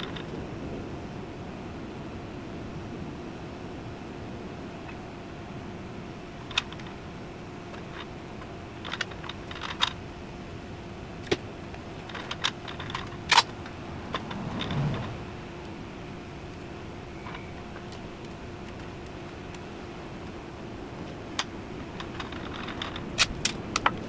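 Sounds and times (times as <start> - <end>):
steady hum: 0.0 - 24.0
short low rumble: 13.5 - 16.2.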